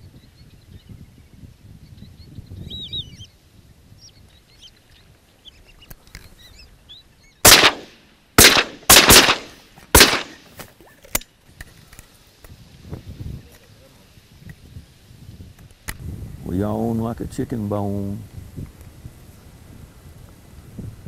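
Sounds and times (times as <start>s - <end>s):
shotgun shots: 7.4s - 10.6s.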